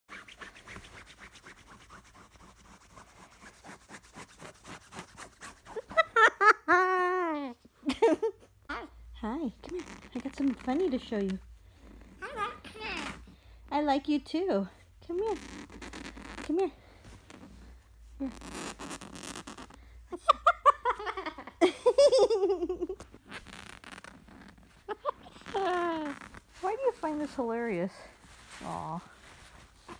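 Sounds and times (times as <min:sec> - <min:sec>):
fingernails scratching bedsheet: 0:00.1 - 0:05.9.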